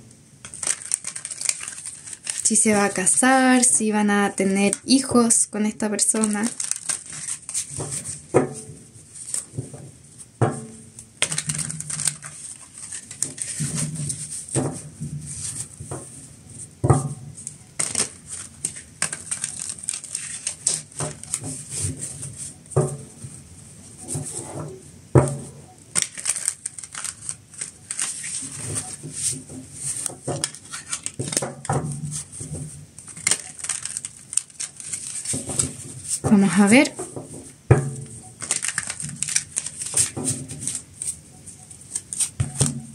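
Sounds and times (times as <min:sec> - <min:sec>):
cards being shuffled by hand: 0:00.4 - 0:03.8, 0:04.4 - 0:08.4, 0:09.1 - 0:10.3, 0:11.2 - 0:16.0, 0:17.4 - 0:22.6, 0:25.9 - 0:37.5, 0:38.3 - 0:41.2, 0:41.8 - 0:42.8.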